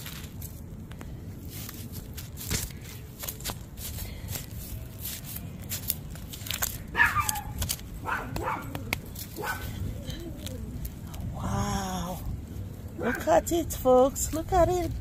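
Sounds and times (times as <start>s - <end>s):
hand tool digging in soil: 0.0s - 11.3s
dog barking: 7.0s - 8.8s, 9.4s - 9.7s.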